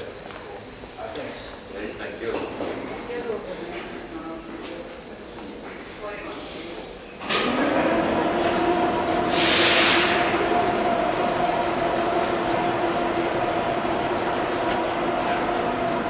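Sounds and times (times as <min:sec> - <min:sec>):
subway train equipment humming: 0:01.8 - 0:16.0
loud air hiss: 0:09.2 - 0:10.5.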